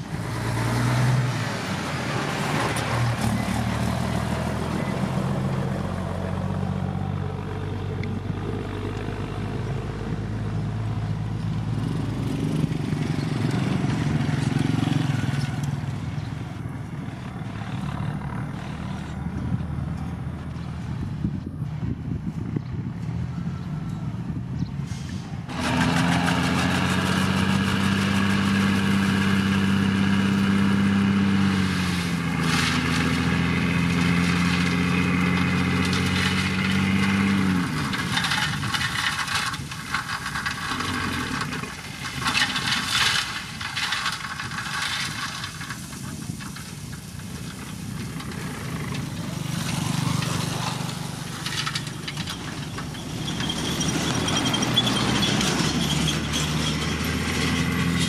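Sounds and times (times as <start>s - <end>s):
quieter engine hum: 0.0s - 58.0s
heavy diesel engine running: 23.0s - 58.0s.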